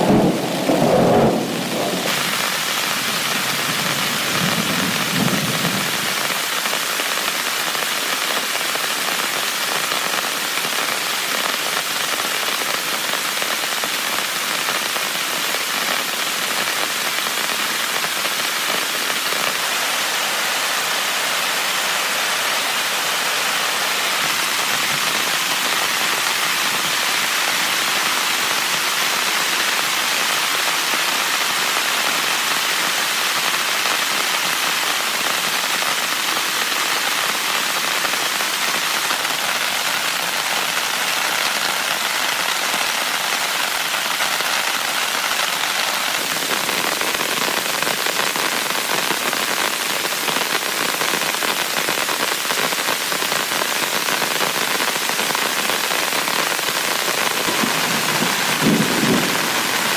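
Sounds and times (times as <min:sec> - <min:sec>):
low rumble: 0:00.0 - 0:02.9
heavy rain drumming on a tent: 0:00.0 - 0:59.9.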